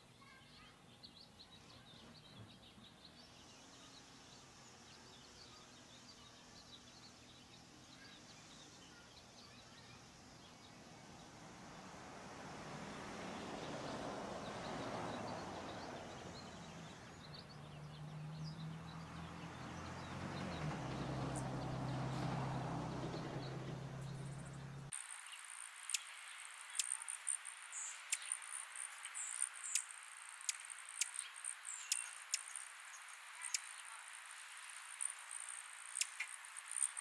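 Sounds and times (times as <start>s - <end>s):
soft rushing hiss: 0.0s - 17.7s, 19.0s - 37.0s
high-pitched insect-like buzz: 24.9s - 37.0s
sharp ticks or chirps: 24.9s - 37.0s.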